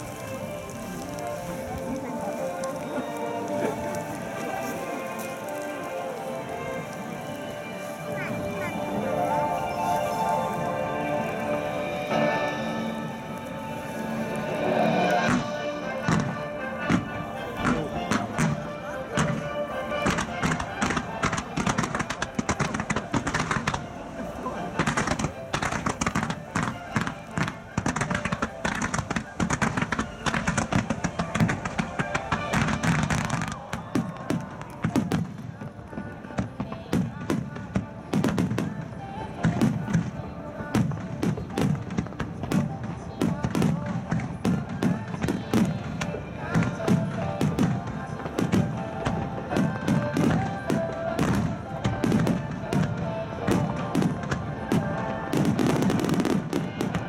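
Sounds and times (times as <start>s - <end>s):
fireworks bursting and crackling: 0.0s - 57.0s
music: 0.0s - 57.0s
firework shells bursting: 8.1s - 35.4s
pop song over loudspeakers: 33.6s - 57.0s.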